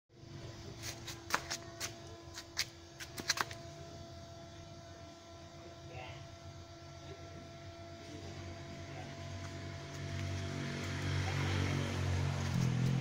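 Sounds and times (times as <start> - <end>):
faint steady hum: 0.1 - 13.0.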